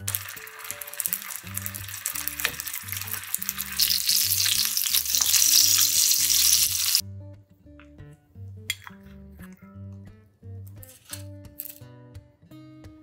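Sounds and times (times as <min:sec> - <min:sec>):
dumplings sizzling in oil: 0:00.0 - 0:07.0.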